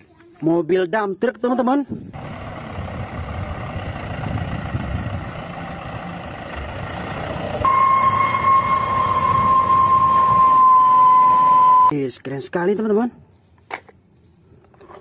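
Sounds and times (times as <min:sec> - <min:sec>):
truck engine rumbling: 0:02.0 - 0:11.9
high-pitched tone: 0:07.6 - 0:11.9.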